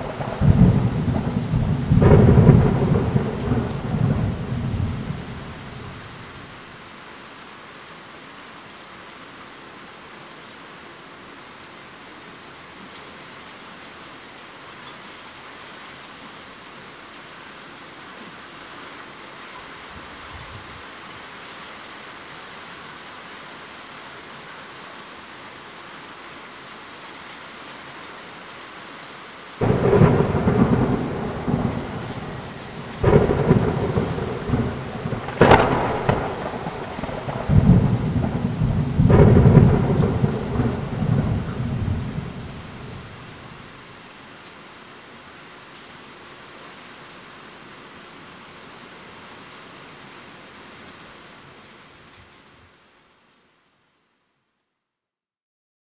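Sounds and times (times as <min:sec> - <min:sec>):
thunder rumbling: 0:00.0 - 0:06.3, 0:29.6 - 0:43.5
steady rain falling: 0:00.0 - 0:54.6.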